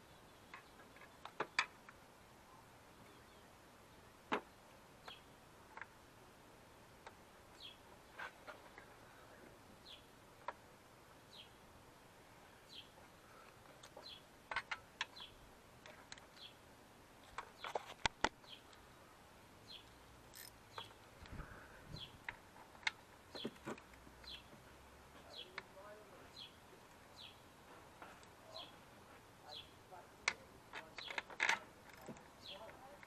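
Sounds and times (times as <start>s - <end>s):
bird chirping: 0.0s - 1.8s, 2.5s - 4.1s, 5.0s - 5.3s, 7.5s - 7.9s, 9.2s - 10.1s, 11.2s - 11.6s, 12.6s - 14.3s, 15.0s - 15.4s, 16.3s - 16.6s, 17.3s - 19.0s, 19.6s - 22.3s, 23.3s - 24.6s, 25.2s - 28.8s, 29.4s - 31.4s, 32.0s - 33.0s
sharp clicks of parts handled: 13.5s - 16.5s, 19.8s - 21.4s, 22.2s - 24.4s, 30.2s - 33.0s.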